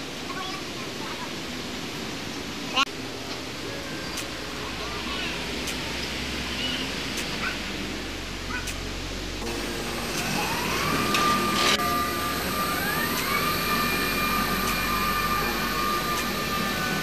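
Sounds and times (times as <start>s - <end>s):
electric motor whine: 9.4s - 17.0s.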